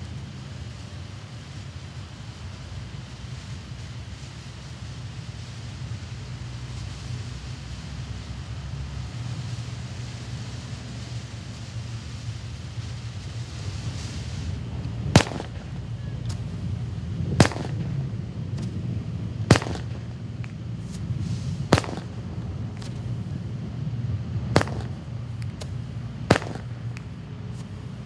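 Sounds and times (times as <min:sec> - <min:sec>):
firework bangs: 0:00.0 - 0:28.0
faint firework pops: 0:09.1 - 0:18.8, 0:19.4 - 0:23.3, 0:24.5 - 0:27.8
low rumble: 0:12.4 - 0:28.0.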